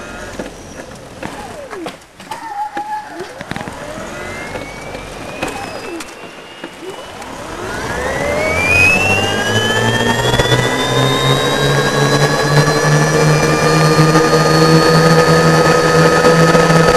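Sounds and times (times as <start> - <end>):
electric motor whining: 0.0 - 2.2, 3.1 - 16.9
short squeaks: 0.0 - 7.4
clicks: 0.0 - 16.9.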